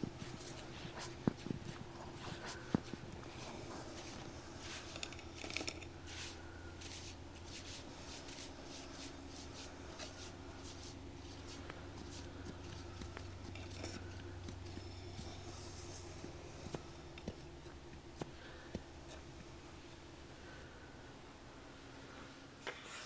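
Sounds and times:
hands brushing and scratching: 0.0 - 19.2
faint steady hum: 0.0 - 23.0.

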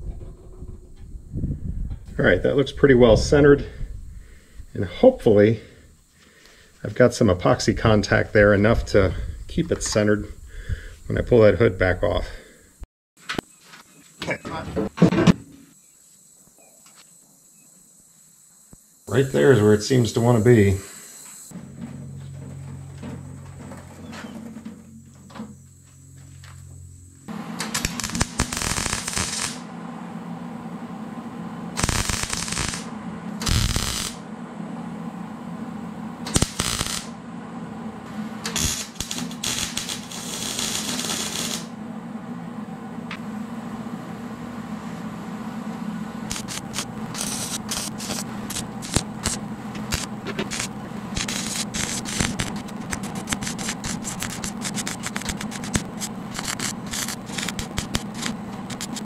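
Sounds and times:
welder arc crackling: 27.3 - 29.7, 31.7 - 34.3, 36.2 - 37.2, 38.4 - 41.8, 46.2 - 59.0.

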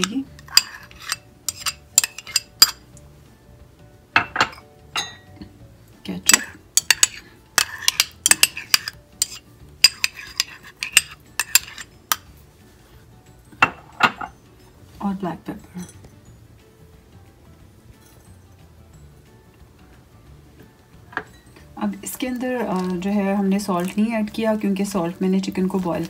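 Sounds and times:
metal spoon clinking on bowl: 0.0 - 2.9, 4.2 - 5.4, 6.3 - 12.3, 15.7 - 16.2
spoon scraping bowl: 0.0 - 2.9, 6.3 - 12.3, 22.2 - 23.1.

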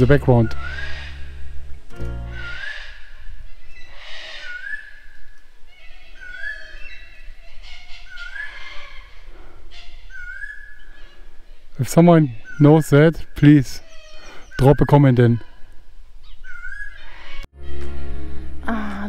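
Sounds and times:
harsh scratchy bird calls: 0.1 - 1.4, 2.3 - 5.0, 5.7 - 11.3, 11.9 - 15.6, 16.2 - 17.5
bird rising whistle: 0.4 - 1.4, 2.3 - 5.0.

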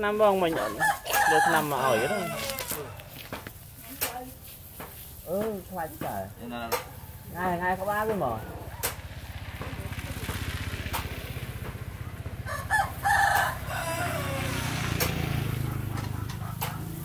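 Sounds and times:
rooster crowing: 0.4 - 3.3, 12.4 - 16.8.

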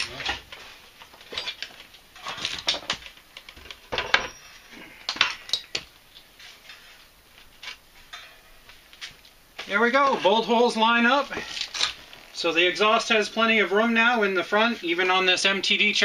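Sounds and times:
metallic clanks on steel frame: 8.1 - 8.6.

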